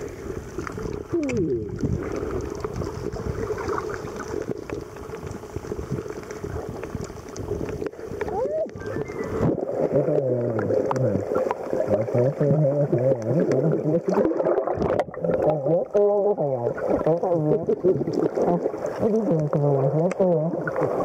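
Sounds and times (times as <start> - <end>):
muffled underwater water rumble: 0.0 - 21.0
muffled wavering pitched sounds: 8.2 - 21.0.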